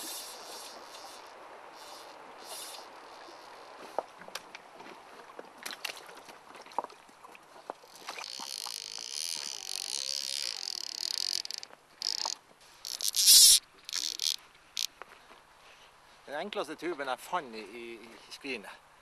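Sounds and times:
fly reel ratchet buzzing: 0:00.0 - 0:03.8, 0:07.9 - 0:14.9.

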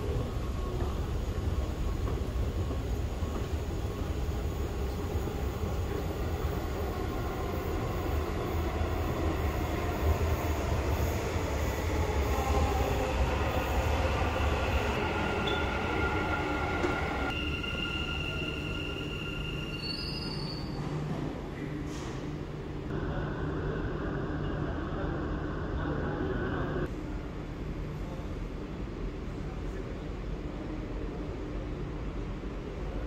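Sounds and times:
train rumbling: 0:00.0 - 0:26.9
high wheel squeal: 0:15.4 - 0:20.8.

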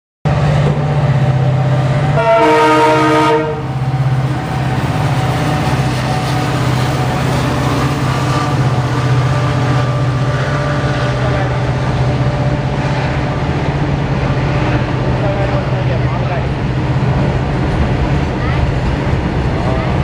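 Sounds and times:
diesel locomotive engines droning: 0:00.3 - 0:20.0
train horn blast: 0:02.1 - 0:03.8.

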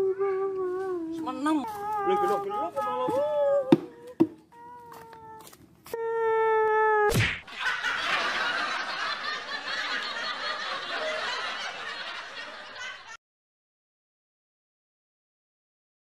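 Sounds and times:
wailing cry: 0:00.0 - 0:07.1
sharp crack: 0:07.1 - 0:07.5
laugh track: 0:07.4 - 0:13.2.

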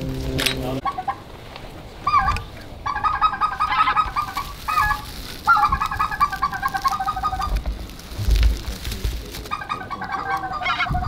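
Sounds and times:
geese yelping calls: 0:00.0 - 0:01.2, 0:02.0 - 0:07.6, 0:09.4 - 0:11.0.

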